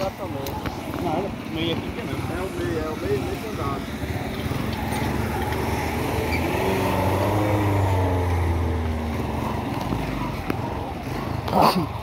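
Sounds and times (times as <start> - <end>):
small car engine driving past: 5.0 - 9.4.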